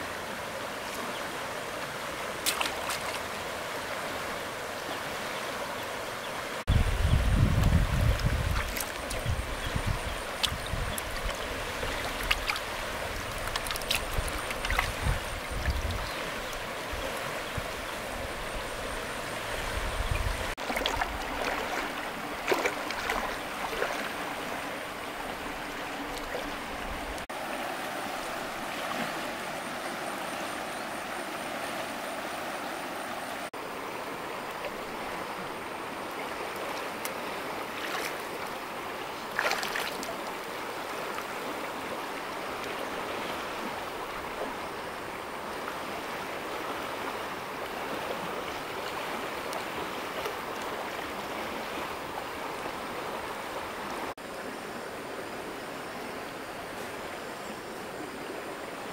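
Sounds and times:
river water rushing: 0:00.0 - 0:58.9
splashes of wading: 0:01.8 - 0:05.2, 0:07.6 - 0:29.6, 0:34.2 - 0:44.8.

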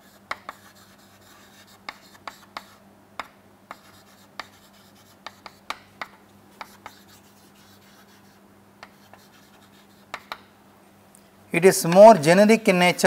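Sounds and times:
chalk writing on chalkboard: 0:00.0 - 0:10.4.

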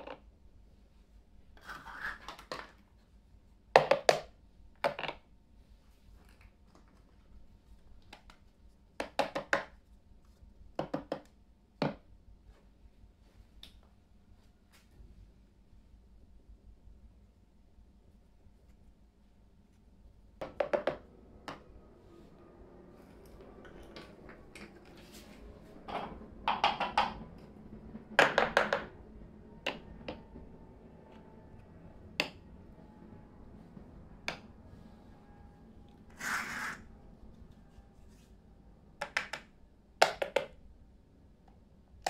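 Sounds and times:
plastic toy cups clacking on table: 0:25.9 - 0:27.2, 0:28.2 - 0:28.9
plastic scraping on table: 0:36.1 - 0:36.8.

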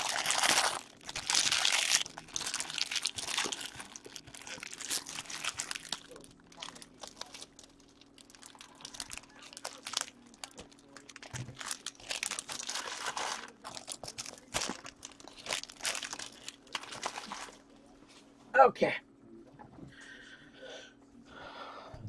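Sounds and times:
plastic wrapping crinkling: 0:00.0 - 0:17.6.

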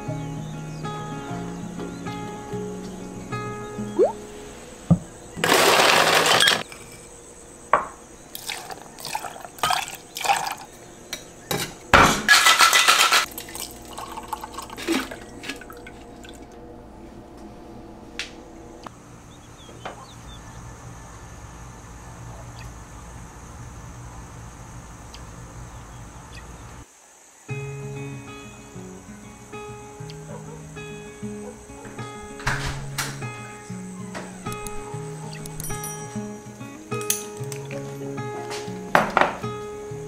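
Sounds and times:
ice cubes clattering from dispenser: 0:05.4 - 0:06.9, 0:12.3 - 0:16.0
ice clinking against metal and glass: 0:05.4 - 0:07.1, 0:08.4 - 0:10.7, 0:11.5 - 0:16.4, 0:35.4 - 0:36.3
drink pouring into glass: 0:08.4 - 0:10.7, 0:13.2 - 0:16.6.

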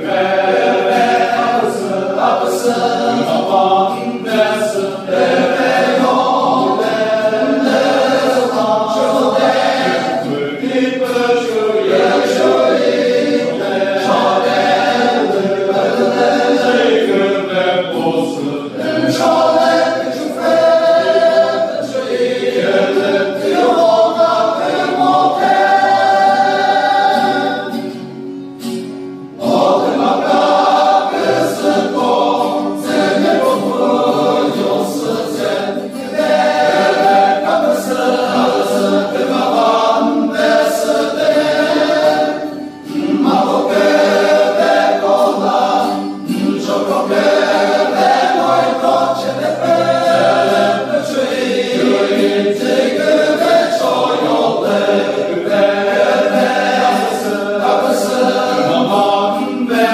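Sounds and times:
male choir singing: 0:00.0 - 0:28.1, 0:29.3 - 0:59.9.

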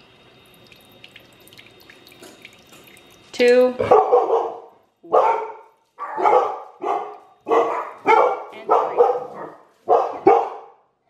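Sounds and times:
dogs barking: 0:03.8 - 0:10.8.

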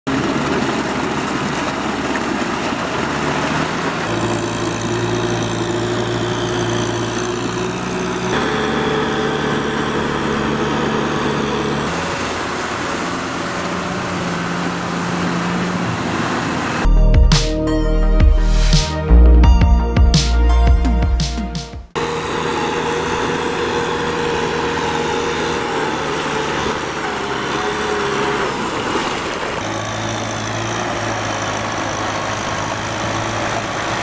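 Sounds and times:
tractor diesel engine under load: 0:00.0 - 0:17.1, 0:21.9 - 0:34.0.

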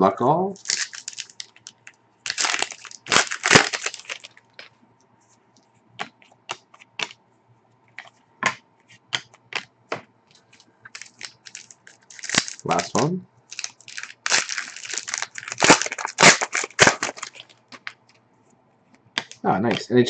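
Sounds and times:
foil wrapper tearing and crinkling: 0:00.6 - 0:01.7, 0:02.3 - 0:04.4, 0:10.9 - 0:18.0.

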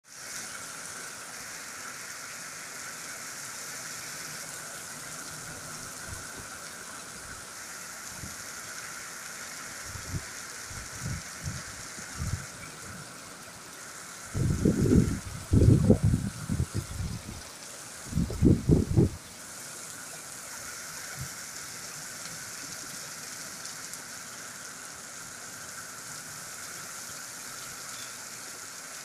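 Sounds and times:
heavy rain on paving: 0:00.0 - 0:29.0.

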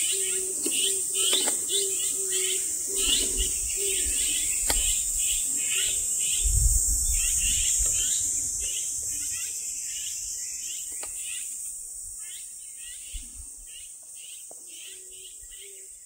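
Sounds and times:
high-pitched insect drone: 0:00.0 - 0:13.9.

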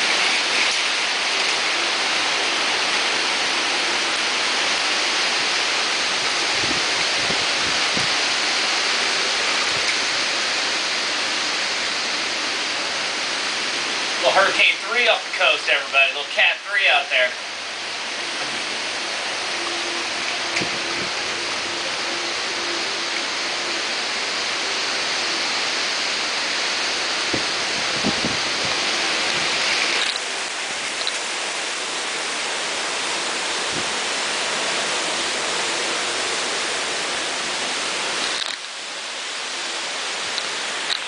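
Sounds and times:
heavy wind-driven rain: 0:00.0 - 0:41.0.

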